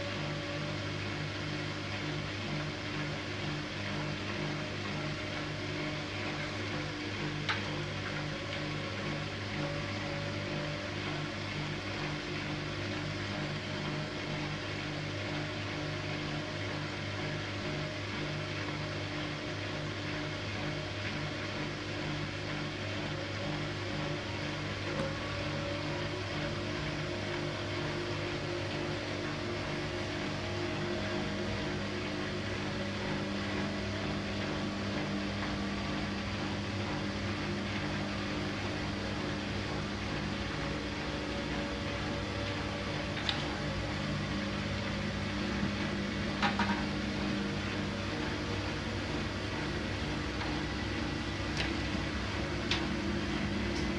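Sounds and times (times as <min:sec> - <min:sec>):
washing machine drum turning: 0:22.2 - 0:53.9.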